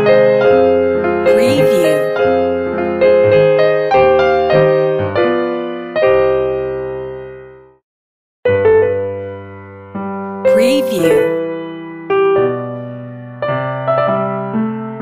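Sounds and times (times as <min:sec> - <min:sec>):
piano keyboard music: 0:01.3 - 0:02.2, 0:10.5 - 0:11.5.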